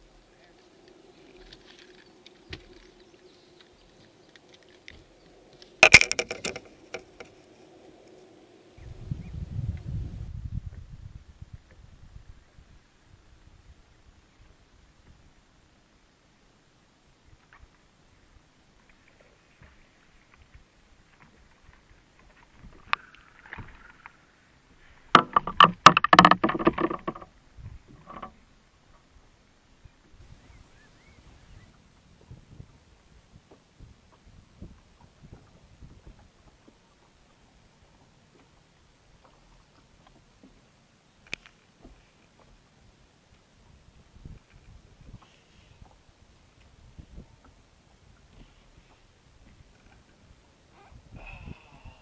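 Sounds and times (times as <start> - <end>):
fishing tackle clicking and rattling: 5.6 - 7.6, 25.2 - 27.2.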